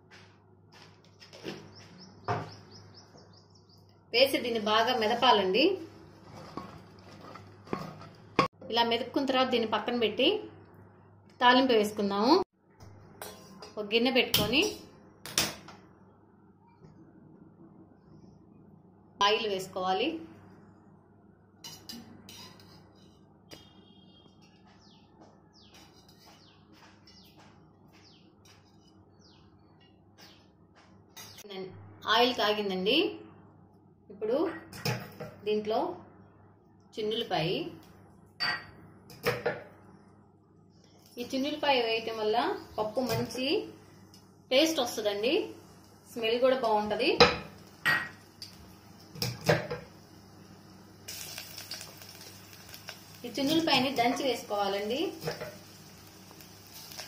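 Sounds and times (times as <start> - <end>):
bird chirping: 1.6 - 4.0
garlic sizzling in hot oil: 44.9 - 57.0.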